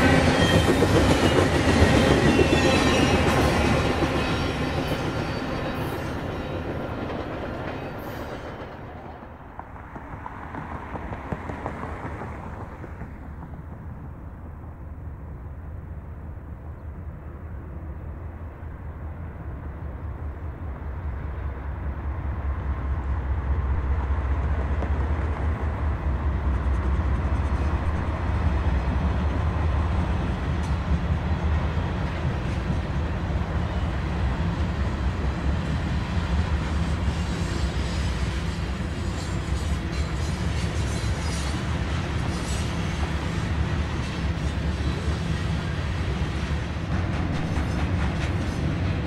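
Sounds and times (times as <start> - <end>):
train wheels clattering on rails: 0.0 - 14.6, 24.4 - 49.0
diesel locomotive engine rumble: 0.0 - 49.0.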